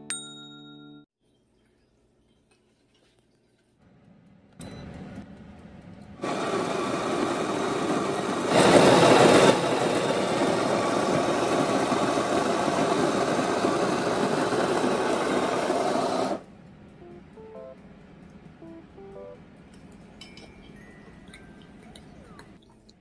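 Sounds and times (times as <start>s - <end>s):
coffee grinder grinding: 6.2s - 16.4s.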